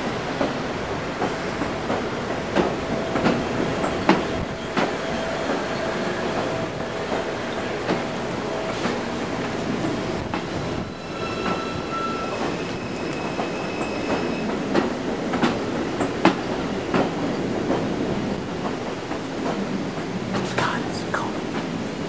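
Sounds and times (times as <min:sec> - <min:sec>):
wheels rumbling on rail: 0:00.0 - 0:22.0
high steady squeal: 0:10.7 - 0:14.7.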